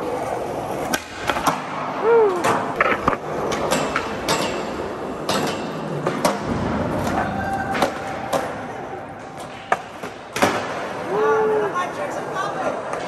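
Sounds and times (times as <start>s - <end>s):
skateboards clacking on ground: 0.0s - 11.1s
skateboard wheels rolling on concrete: 0.0s - 13.0s
skateboard hitting metal bar: 2.8s - 8.5s.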